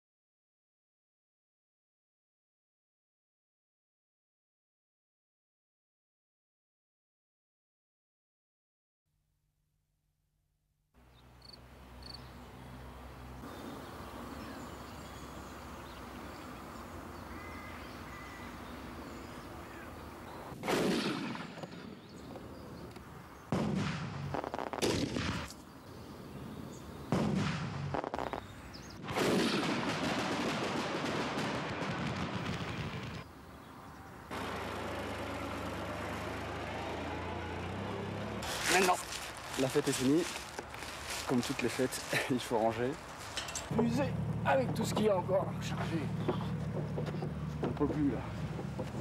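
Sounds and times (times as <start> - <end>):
fireworks blasts with crackling: 23.5 - 25.6, 27.1 - 33.3
forklift engine hum: 34.3 - 39.5, 43.0 - 49.0
fireworks hissing: 38.4 - 42.4.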